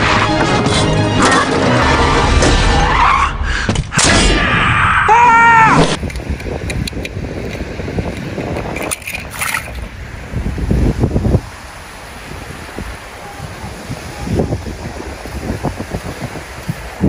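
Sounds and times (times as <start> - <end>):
cartoon crash impacts: 3.8 - 4.9
wind on microphone: 5.8 - 17.0.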